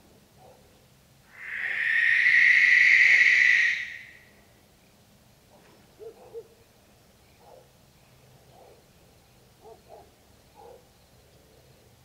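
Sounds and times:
barn owl screeching: 0:01.3 - 0:04.3.

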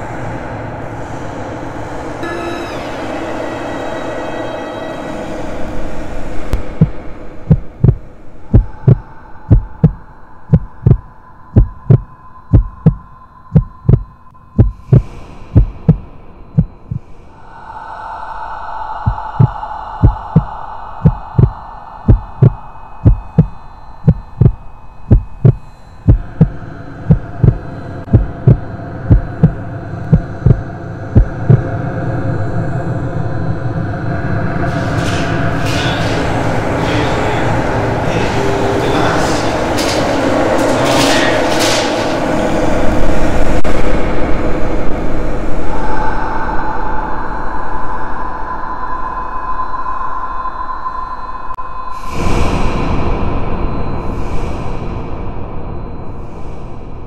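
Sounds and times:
droning hum: 0:00.0 - 0:57.0
heartbeat thumps: 0:06.6 - 0:17.0, 0:19.0 - 0:31.6.

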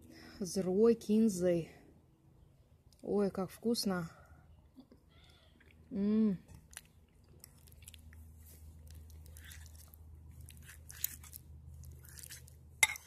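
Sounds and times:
person chewing food: 0:04.9 - 0:13.0.

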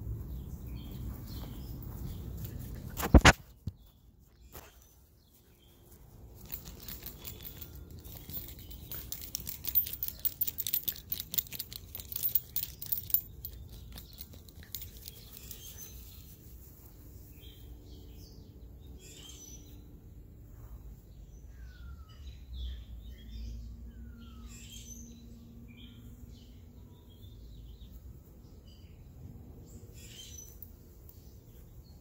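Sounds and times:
grass crackling and rustling: 0:01.2 - 0:03.8.

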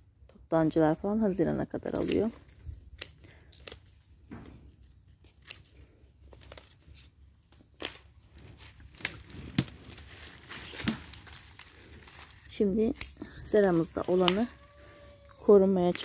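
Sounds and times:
leaves rustling: 0:00.7 - 0:04.1, 0:04.7 - 0:16.0
pruning shears snipping: 0:12.2 - 0:14.5, 0:15.5 - 0:16.0.

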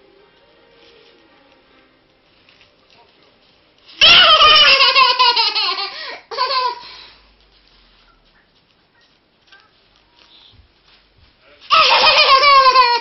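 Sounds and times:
toddler laughing: 0:04.0 - 0:06.9, 0:11.7 - 0:13.0.

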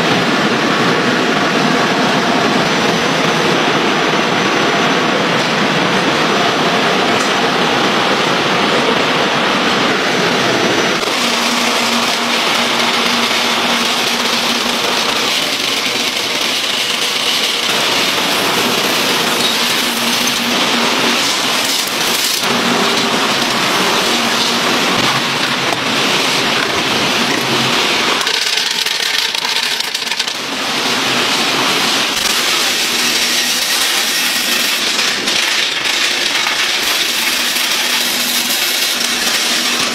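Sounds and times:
machinery hum: 0:00.0 - 0:39.9
rice grains rattling on metal: 0:11.1 - 0:26.6, 0:27.9 - 0:31.1, 0:31.9 - 0:39.9.

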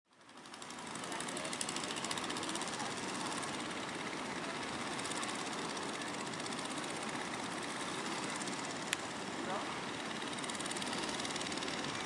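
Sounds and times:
boat engine knocking: 0:00.4 - 0:12.0.

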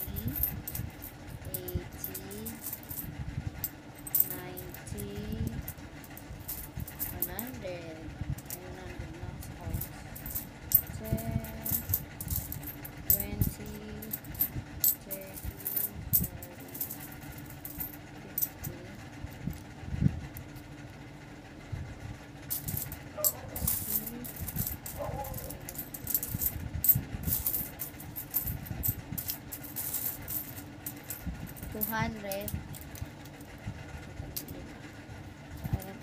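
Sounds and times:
coins clinking: 0:00.0 - 0:03.1, 0:04.0 - 0:07.6, 0:08.4 - 0:18.8, 0:22.5 - 0:33.5.

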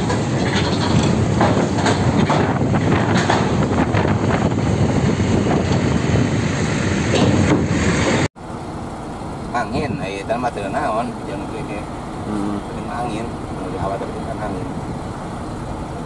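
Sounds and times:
trailer wheels clattering on steel ramp: 0:00.0 - 0:03.8.

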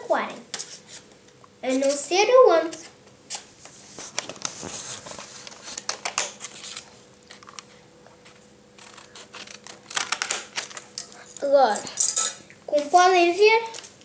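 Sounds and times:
paper crinkling: 0:03.3 - 0:11.3
scissors snipping paper: 0:08.8 - 0:11.1.

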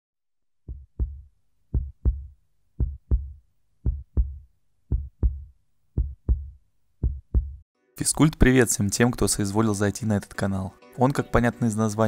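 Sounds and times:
heartbeat thumps: 0:00.7 - 0:07.6.

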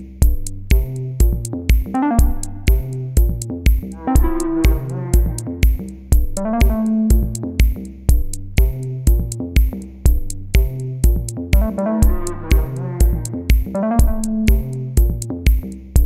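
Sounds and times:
background music with steady beat: 0:00.0 - 0:16.0
held keyboard notes: 0:01.2 - 0:07.8, 0:10.6 - 0:15.3.

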